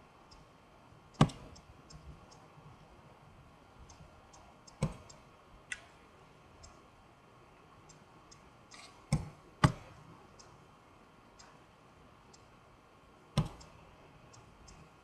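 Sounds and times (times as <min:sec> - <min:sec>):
light ticks: 0:03.8 - 0:05.9, 0:06.6 - 0:06.8, 0:07.8 - 0:08.9, 0:11.4 - 0:11.6, 0:13.4 - 0:15.0.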